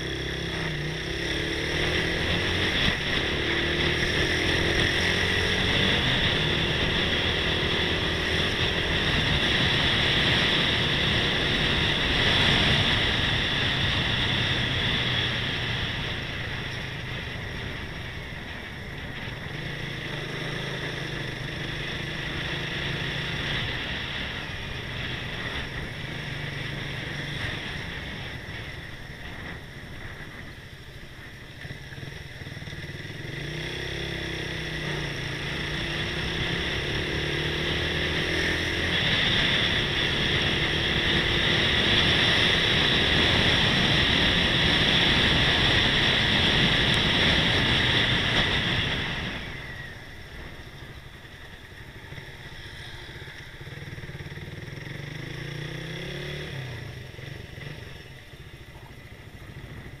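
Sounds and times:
motorcycle engine accelerating: 0:00.0 - 1:00.0
wind rush on microphone: 0:37.8 - 0:52.4.

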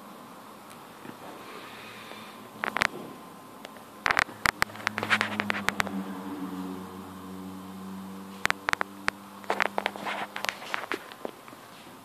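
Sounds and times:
low mechanical hum: 0:00.0 - 0:12.0
sharp clicks and knocks: 0:02.6 - 0:06.0, 0:08.4 - 0:11.6.

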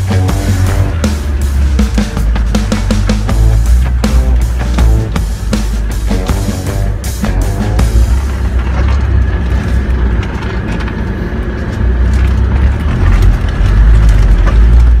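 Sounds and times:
off-road vehicle engine running: 0:00.0 - 0:15.0
vehicle rumbling over rough ground: 0:00.0 - 0:15.0.

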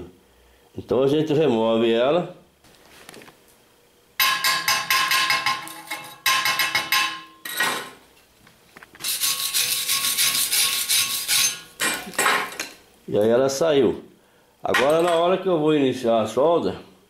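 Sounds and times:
wire brush scrubbing metal: 0:04.5 - 0:07.2, 0:09.0 - 0:11.8
steel tool chipping slag: 0:09.1 - 0:12.6.

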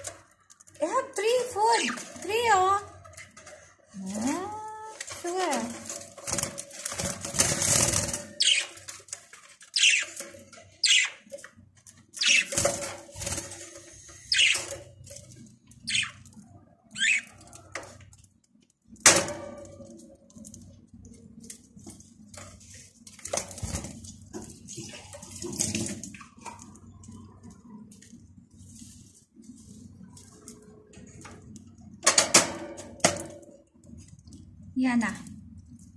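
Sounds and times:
food dishes rattling on cage: 0:01.6 - 0:10.5
budgerigars squawking: 0:08.4 - 0:08.7, 0:09.8 - 0:10.2, 0:10.8 - 0:11.2, 0:12.2 - 0:12.5, 0:14.3 - 0:14.7, 0:15.9 - 0:16.2, 0:17.0 - 0:17.3.

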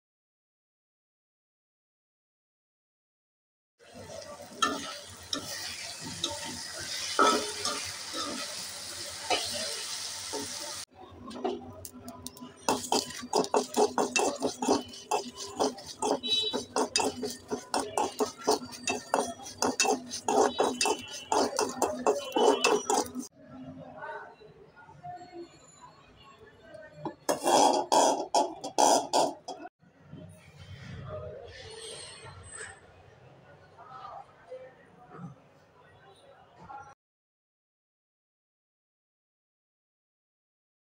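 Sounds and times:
seeds scraping and rattling in pan: 0:12.2 - 0:23.3, 0:27.3 - 0:29.4.

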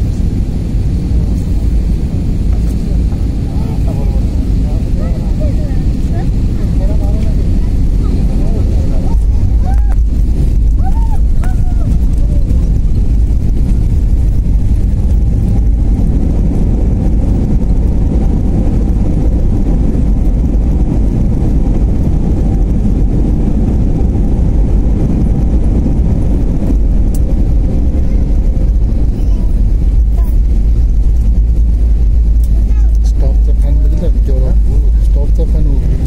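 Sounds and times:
jet engine rumble in cabin: 0:00.0 - 0:36.0
landing gear rolling on runway: 0:00.0 - 0:36.0.

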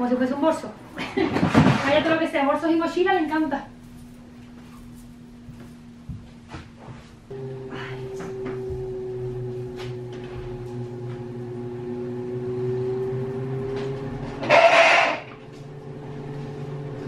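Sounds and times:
steady tonal hum: 0:00.0 - 0:17.0.

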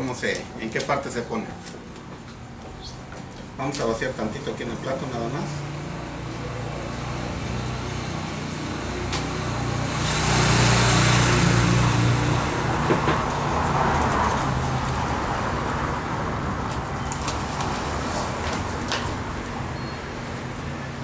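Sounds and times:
motor vehicle passing by: 0:04.9 - 0:21.0.

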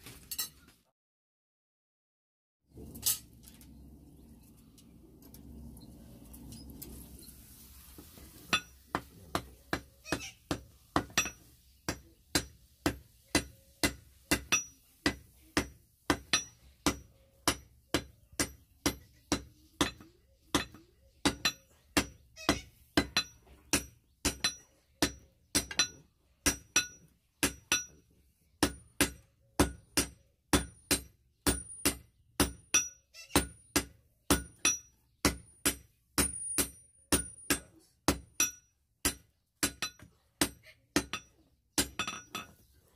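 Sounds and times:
hammer striking steel on anvil: 0:08.5 - 0:22.2, 0:23.0 - 0:28.0, 0:28.6 - 0:42.5.

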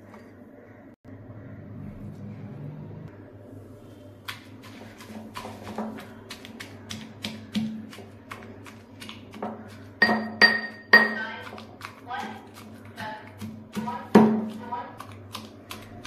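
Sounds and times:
pestle pounding in mortar: 0:04.3 - 0:16.0.

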